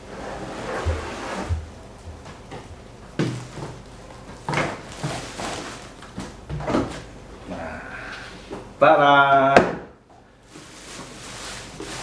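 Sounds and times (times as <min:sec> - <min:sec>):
plastic and cardboard rustling: 0:03.2 - 0:07.1, 0:10.4 - 0:12.0.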